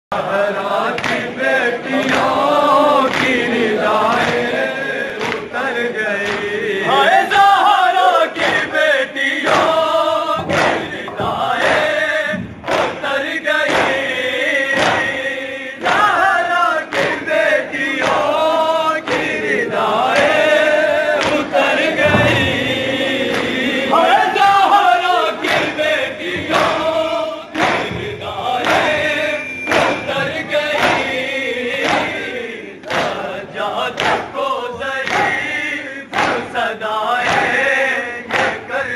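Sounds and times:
men chanting a lament: 0:00.1 - 0:38.9
hands slapping chests: 0:00.8 - 0:01.4, 0:02.0 - 0:06.6, 0:10.4 - 0:12.0, 0:12.6 - 0:15.2, 0:16.8 - 0:17.3, 0:17.9 - 0:22.4, 0:25.4 - 0:33.2, 0:33.8 - 0:38.7.

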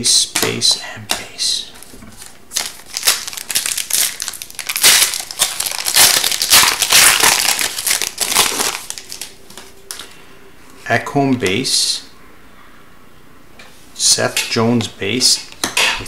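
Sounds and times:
foil wrapper crinkling and tearing: 0:02.2 - 0:10.1.

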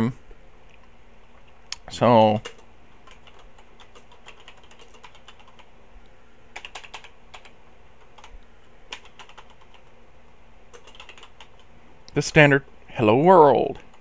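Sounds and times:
computer keyboard keys clicking: 0:02.2 - 0:05.7, 0:06.6 - 0:09.9, 0:10.7 - 0:11.7.

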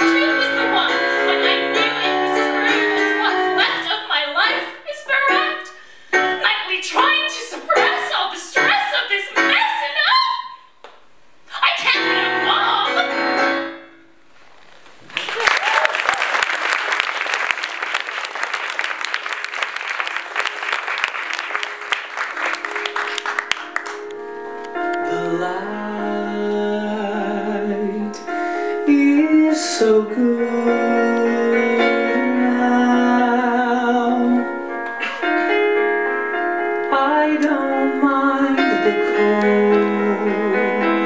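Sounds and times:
audience applause: 0:15.0 - 0:24.1
electronic keyboard chords and melody: 0:21.2 - 0:41.0.

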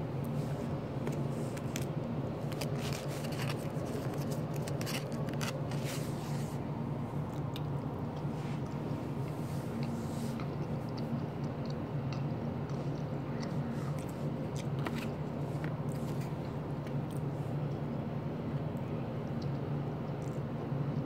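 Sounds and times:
steady low hum: 0:00.0 - 0:21.0
person chewing fried food: 0:00.6 - 0:06.2, 0:07.2 - 0:17.3.

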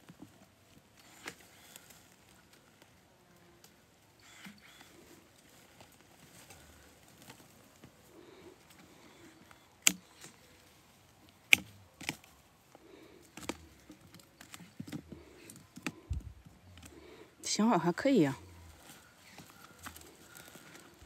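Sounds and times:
twigs rustling: 0:00.0 - 0:21.0
pruning shears snipping stems: 0:08.7 - 0:10.6, 0:11.2 - 0:12.3, 0:13.2 - 0:17.0.

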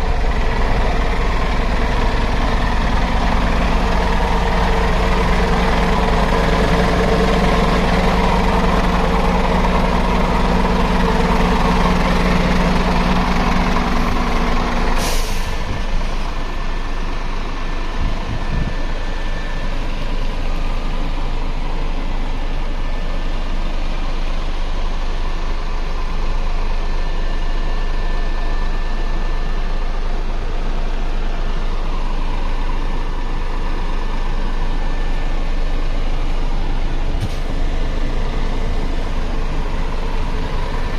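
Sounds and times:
diesel truck engine idling: 0:00.0 - 0:40.9
air hiss: 0:15.0 - 0:15.6.

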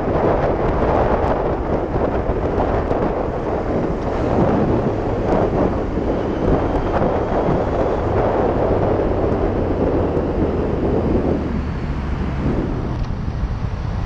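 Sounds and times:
motorcycle engine droning: 0:00.0 - 0:14.0
wind buffeting on microphone: 0:00.0 - 0:14.0.

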